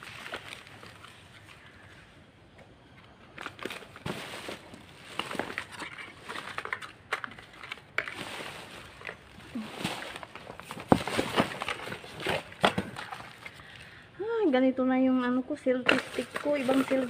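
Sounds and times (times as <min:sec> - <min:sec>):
plastic bags rustling: 0:00.0 - 0:02.0, 0:03.3 - 0:14.0, 0:15.8 - 0:17.0
items clicking and knocking: 0:02.6 - 0:13.6, 0:15.8 - 0:17.0.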